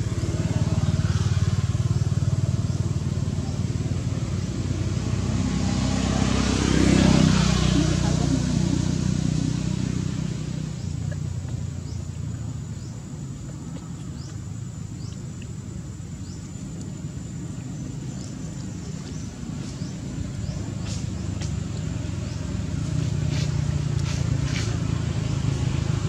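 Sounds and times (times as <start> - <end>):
vehicle engine rumbling: 0.0 - 26.0.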